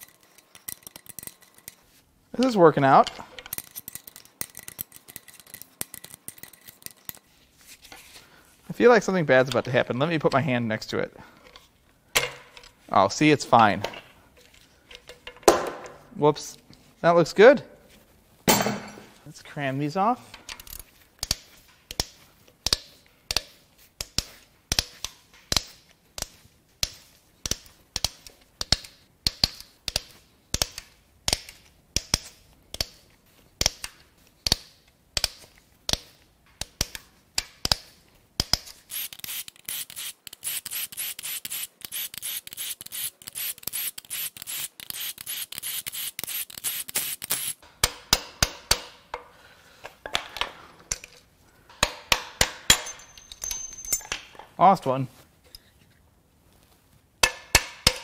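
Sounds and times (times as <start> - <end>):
ratchet wrench clicking: 3.5 - 7.2, 38.4 - 47.6.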